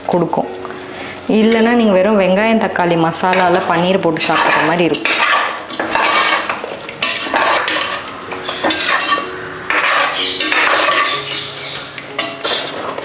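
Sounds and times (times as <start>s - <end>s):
metal spoon scraping steel pot: 3.3s - 13.0s.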